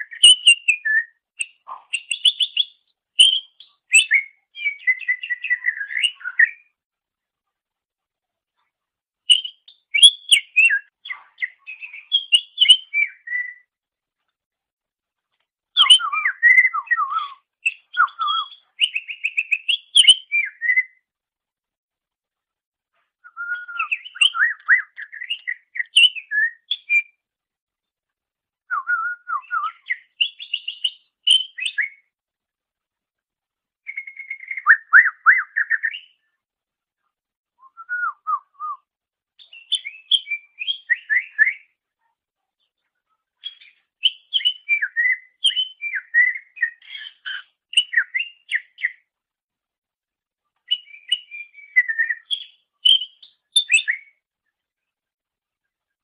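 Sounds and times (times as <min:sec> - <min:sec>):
bird whistling and chirping: 0:00.0 - 0:06.7, 0:09.3 - 0:13.7, 0:15.8 - 0:21.0, 0:23.2 - 0:27.2, 0:28.7 - 0:32.1, 0:33.8 - 0:36.2, 0:37.6 - 0:41.7, 0:43.4 - 0:49.1, 0:50.7 - 0:54.2.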